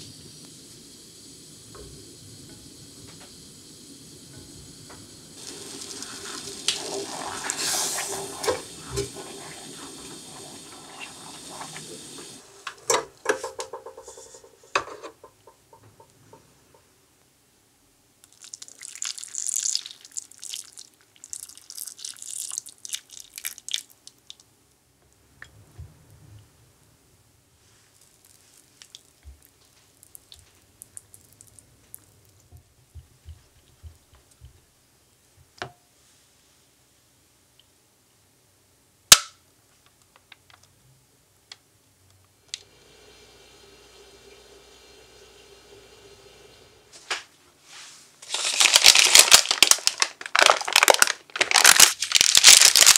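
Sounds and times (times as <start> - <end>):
faint steady hum: 0.0 - 18.8, 23.9 - 48.3
cream pouring into bowl: 5.4 - 12.4, 18.2 - 23.9, 48.2 - 52.9
kitchenware clack: 12.8 - 16.4.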